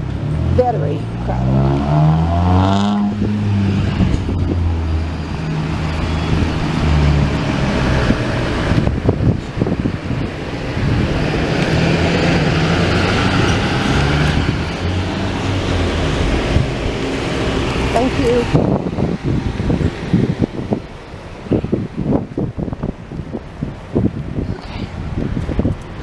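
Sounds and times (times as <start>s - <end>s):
car engines humming: 0.0s - 26.0s.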